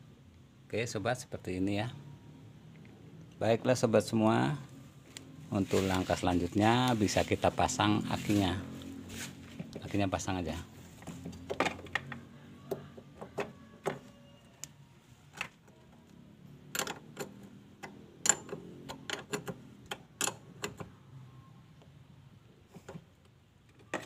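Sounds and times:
spanner clicking on metal clamp: 0:16.8 - 0:20.8.

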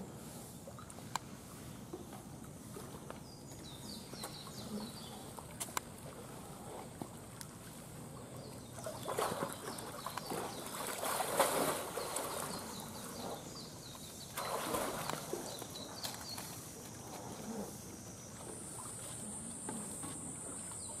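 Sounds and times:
water splashing: 0:07.2 - 0:13.3, 0:14.2 - 0:17.4.

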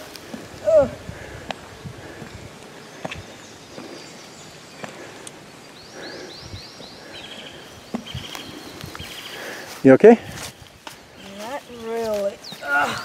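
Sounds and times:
footsteps scuffing on stone steps: 0:08.0 - 0:12.7.

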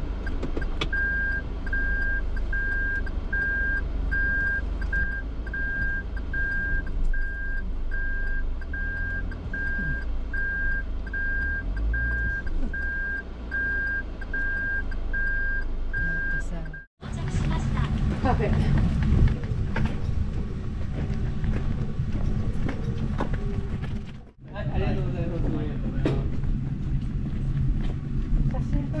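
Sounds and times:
van road and engine rumble: 0:00.0 - 0:29.0
high electronic beep: 0:00.9 - 0:16.9.

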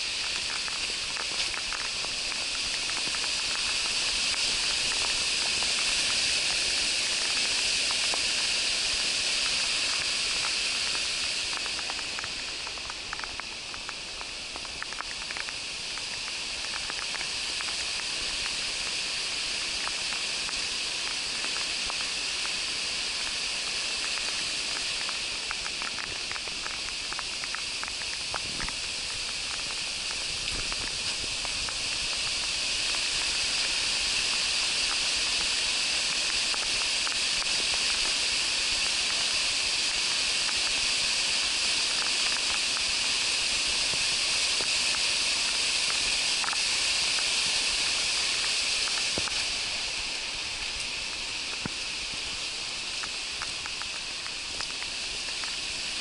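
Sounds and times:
raindrops ticking: 0:00.0 - 0:56.0
river rushing over rocks: 0:00.0 - 0:56.0.

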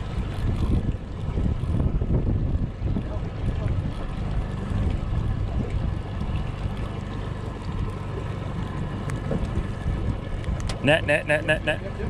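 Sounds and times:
wind on microphone: 0:00.0 - 0:06.8, 0:09.2 - 0:11.8
outboard motor running: 0:00.0 - 0:12.0
water washing past hull: 0:00.0 - 0:12.0.

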